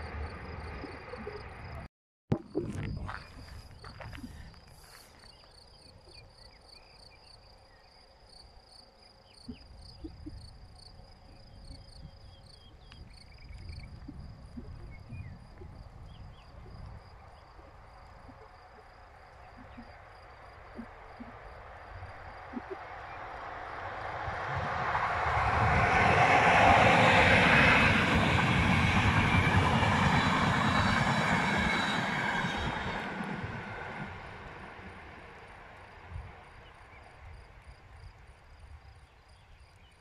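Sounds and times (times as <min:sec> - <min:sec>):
train approaching rumble: 0:00.0 - 0:01.9, 0:08.9 - 0:38.4
wind on microphone: 0:00.0 - 0:05.0, 0:11.2 - 0:35.1, 0:36.0 - 0:39.6
cricket chirping: 0:00.0 - 0:40.0
bird chirps: 0:09.0 - 0:10.6, 0:11.3 - 0:20.1, 0:22.5 - 0:23.3.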